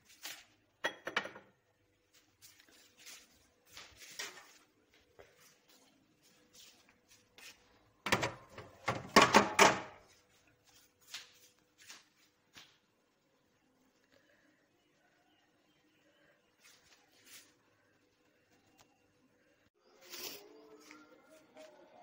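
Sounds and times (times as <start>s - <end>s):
cabinet knocks and clicks: 8.1s - 10.0s.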